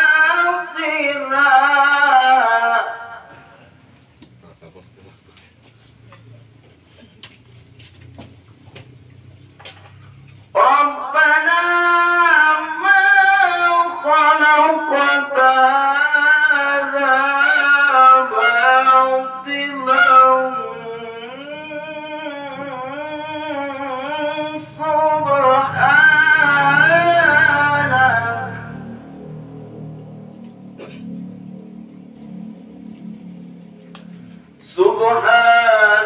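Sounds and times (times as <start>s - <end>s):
man reciting melodically: 0.0s - 3.8s, 10.5s - 29.1s, 34.6s - 36.0s.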